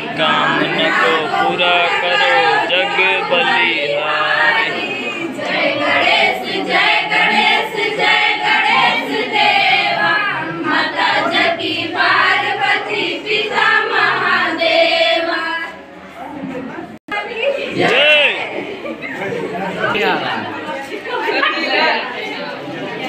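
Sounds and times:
girls singing in unison: 0:00.0 - 0:15.9.

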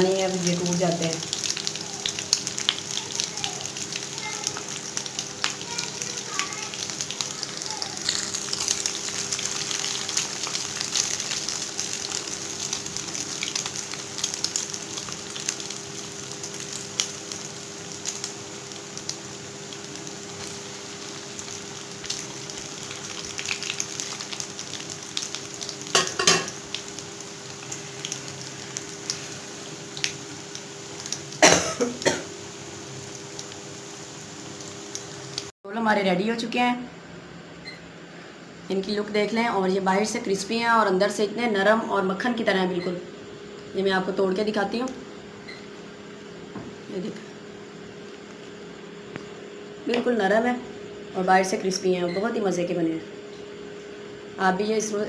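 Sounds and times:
food sizzling in hot oil: 0:00.0 - 0:35.6.

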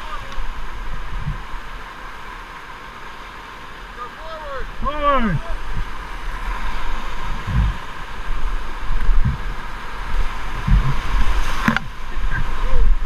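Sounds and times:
whitewater rapids rushing: 0:00.0 - 0:13.0
low thumps on microphone: 0:00.9 - 0:01.5, 0:07.2 - 0:09.7, 0:10.4 - 0:12.0.

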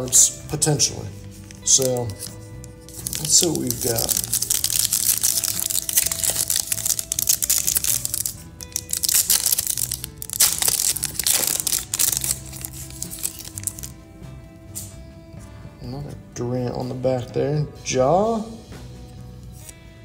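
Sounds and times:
background music: 0:00.0 - 0:20.0
foil wrapper crinkling and tearing: 0:01.3 - 0:14.0.

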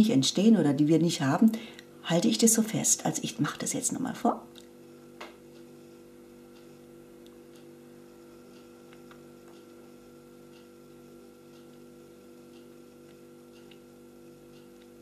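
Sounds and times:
electrical hum: 0:00.0 - 0:15.0
faint small ticks: 0:06.5 - 0:15.0.

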